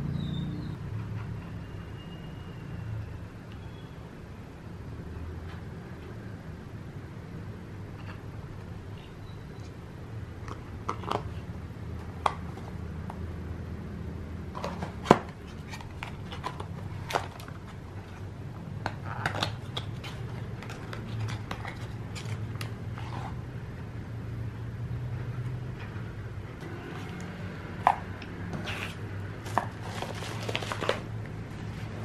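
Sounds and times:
packaging taps clicks and rustles: 0:14.6 - 0:17.8, 0:18.8 - 0:22.8, 0:29.4 - 0:31.1.

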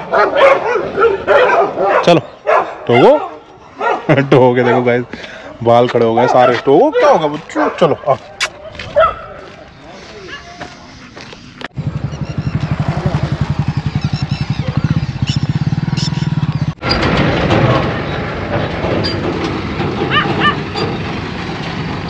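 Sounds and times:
outdoor noise: 0:00.0 - 0:22.0
engine throbbing: 0:11.8 - 0:22.0.

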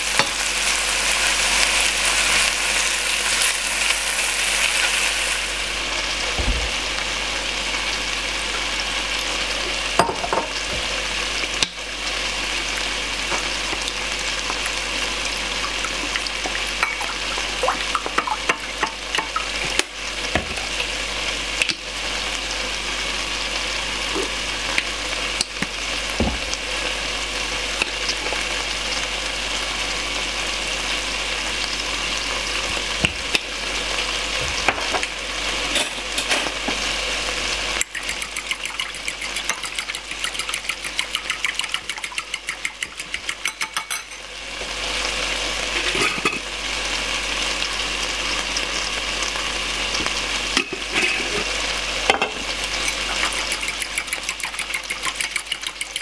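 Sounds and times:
metal spoon clinking in glass bowl: 0:37.8 - 0:44.2, 0:52.8 - 0:56.0.

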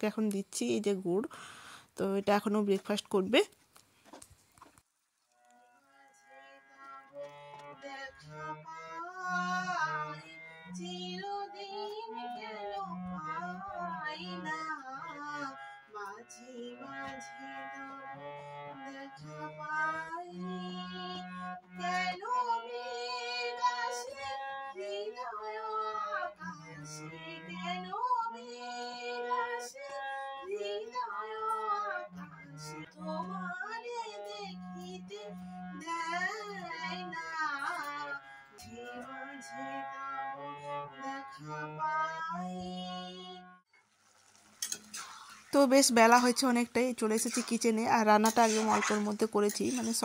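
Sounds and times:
woman singing: 0:00.0 - 0:01.4, 0:06.4 - 0:18.0, 0:18.8 - 0:40.2, 0:40.8 - 0:43.4, 0:45.6 - 0:50.0
harmonium playing: 0:05.5 - 0:43.6, 0:45.6 - 0:50.0
faint hiss: 0:43.8 - 0:46.5.

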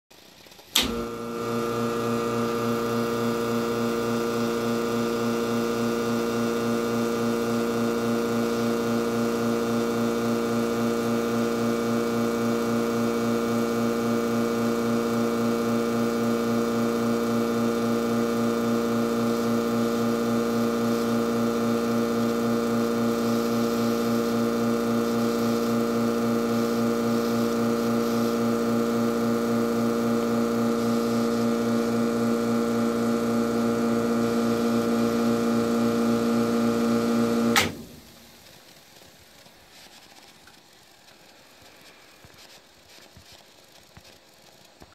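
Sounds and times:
espresso machine pump humming: 0:00.8 - 0:38.3.

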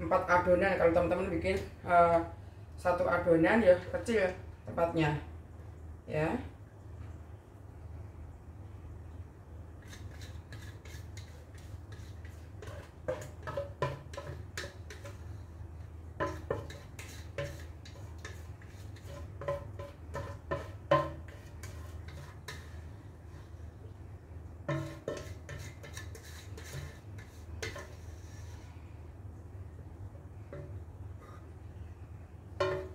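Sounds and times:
spatula scraping metal bowl: 0:09.8 - 0:23.5, 0:24.7 - 0:28.8.

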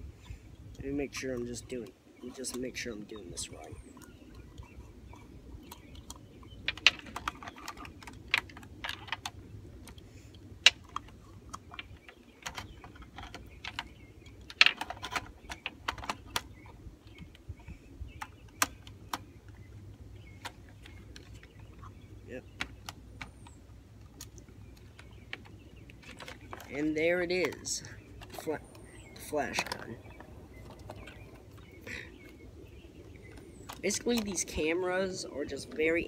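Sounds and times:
faint low background noise: 0:00.0 - 0:36.0
plastic and metal parts clicking: 0:10.6 - 0:17.4, 0:18.2 - 0:19.3, 0:24.2 - 0:32.4.

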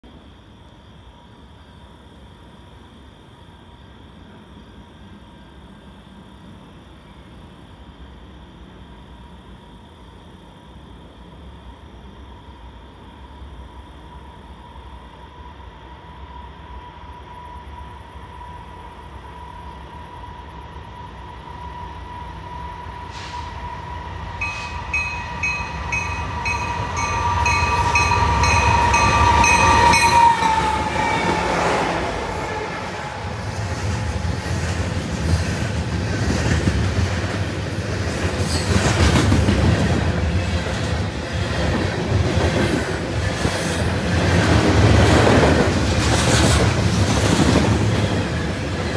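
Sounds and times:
locomotive engine passing: 0:23.2 - 0:48.9
train bell ringing: 0:24.4 - 0:33.3
freight cars clickety-clack: 0:33.1 - 0:48.9.

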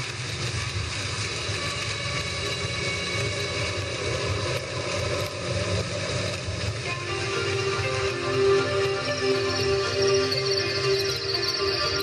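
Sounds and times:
steady low drone: 0:00.0 - 0:12.0
background music: 0:01.1 - 0:12.0.

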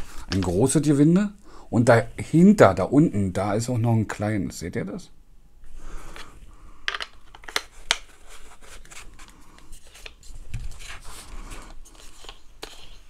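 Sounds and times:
parts rubbing and scraping: 0:09.7 - 0:13.0.

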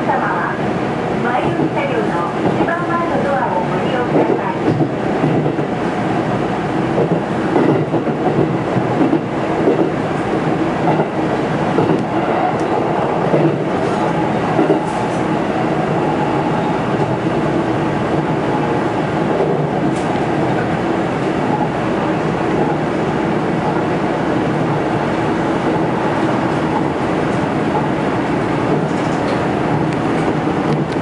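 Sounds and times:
train running rumble: 0:00.0 - 0:31.0.

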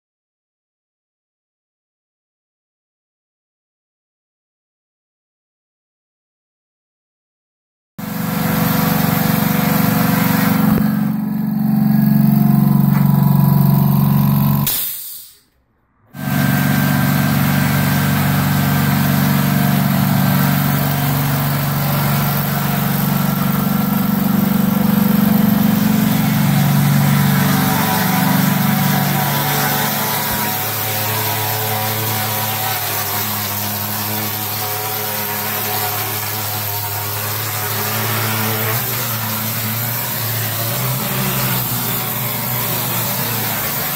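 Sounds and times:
plastering machine humming: 0:08.0 - 0:14.8, 0:16.2 - 0:43.9.

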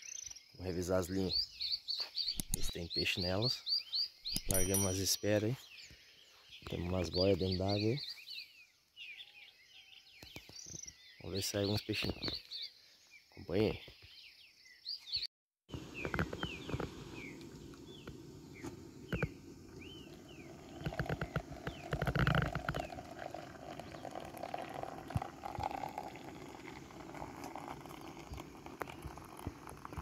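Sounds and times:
birds chirping: 0:00.0 - 0:30.0
water pouring from kettle: 0:20.2 - 0:30.0.

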